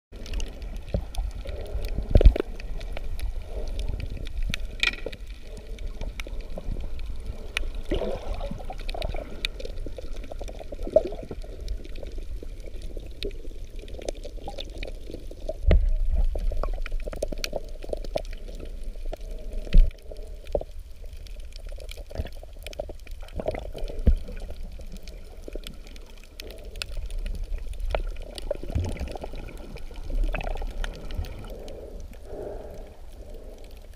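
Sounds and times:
underwater sloshing and bubbling: 0.1 - 33.9.

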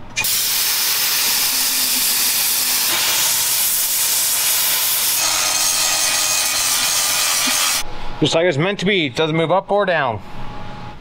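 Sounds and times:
plasma cutter hissing: 0.2 - 7.8
angle grinder whining: 1.2 - 7.8.

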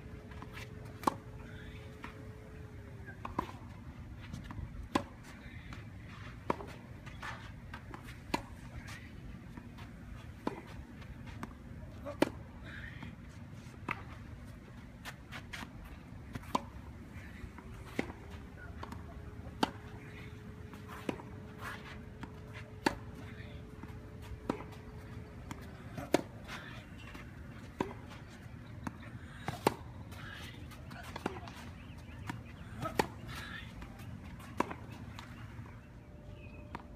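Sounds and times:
tennis ball hitting racket: 0.3 - 1.3, 10.4 - 12.4, 16.3 - 16.8, 17.5 - 35.3
tennis ball bouncing on court: 0.4 - 1.3, 3.2 - 3.7, 4.3 - 5.8, 10.4 - 12.4, 16.3 - 16.8, 17.6 - 35.4.

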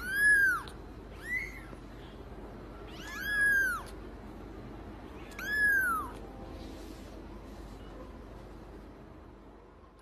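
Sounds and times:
kitten mewing: 0.0 - 1.8, 2.8 - 4.0, 5.1 - 6.3.

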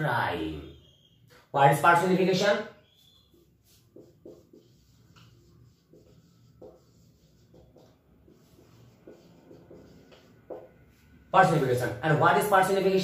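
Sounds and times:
marker pen squeaking on whiteboard: 0.6 - 1.5, 2.8 - 11.0.

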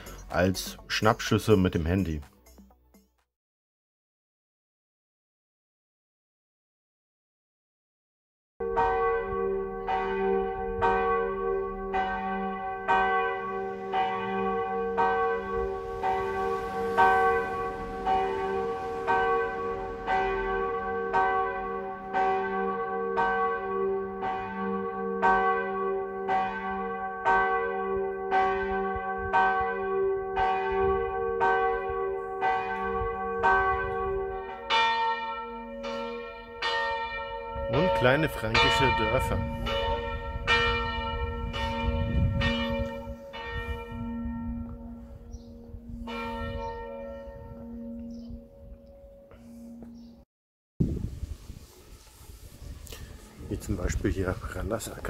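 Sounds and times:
deep bell hum: 8.6 - 25.6, 30.4 - 50.2
church bells pealing: 8.6 - 50.2, 53.4 - 55.0.

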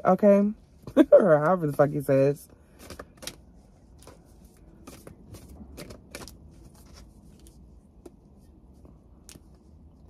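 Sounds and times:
cards shuffling: 2.7 - 8.1.

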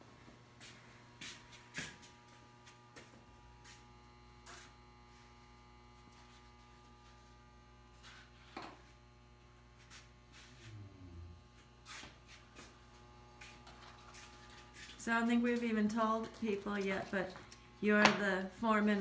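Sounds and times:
faint electrical mains hum: 0.0 - 19.0
lower hum: 2.0 - 13.7.

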